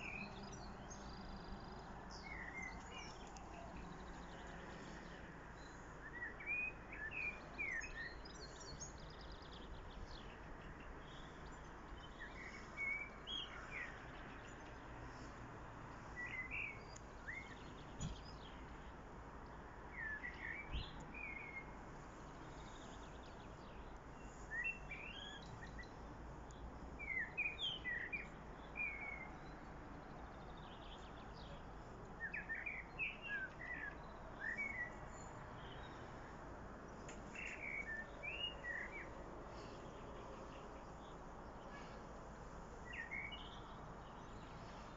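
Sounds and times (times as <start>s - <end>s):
blackbird singing: 0.0s - 14.6s, 16.2s - 18.6s, 19.9s - 21.8s, 23.6s - 25.9s, 27.0s - 29.6s, 30.5s - 36.1s, 37.3s - 42.0s, 42.8s - 44.7s
steady background noise: 0.0s - 44.9s.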